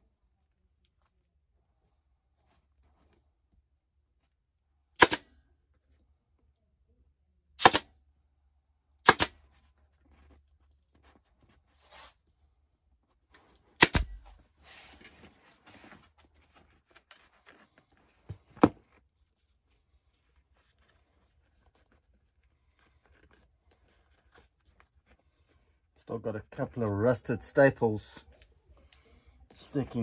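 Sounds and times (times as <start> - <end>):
staple gun cracks: 5.0 - 5.2, 7.6 - 7.9, 9.1 - 9.3, 13.8 - 14.2
material rustling and crinkling: 9.4 - 27.0.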